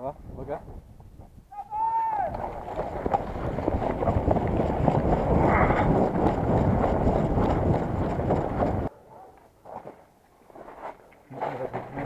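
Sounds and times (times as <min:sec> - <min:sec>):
wind rumbling on microphone: 0:00.0 - 0:08.9
running footsteps on snow: 0:02.5 - 0:08.9.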